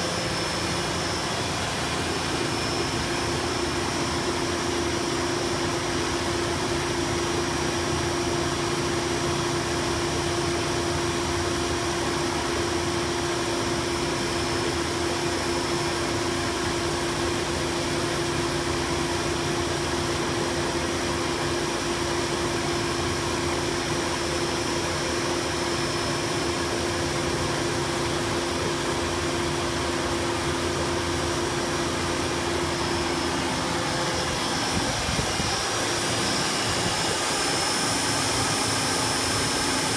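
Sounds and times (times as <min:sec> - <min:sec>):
fan motor hum: 0:00.0 - 0:39.9
rush of air and spray: 0:31.8 - 0:39.9.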